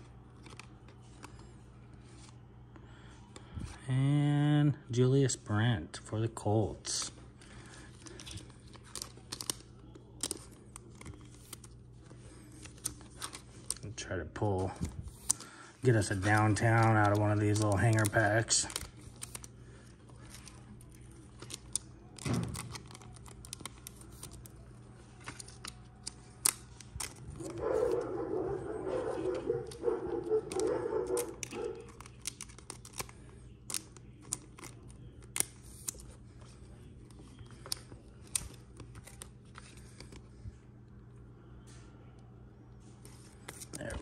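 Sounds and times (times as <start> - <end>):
paper-plastic rustles: 7.0 - 40.6
pack tearing and crinkling: 15.1 - 19.5, 20.2 - 24.5, 29.1 - 36.0.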